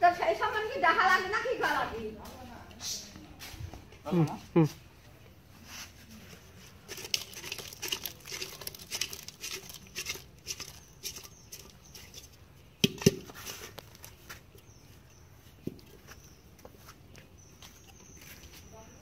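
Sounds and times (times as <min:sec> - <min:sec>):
fish flapping in metal bowl: 0:06.8 - 0:12.4.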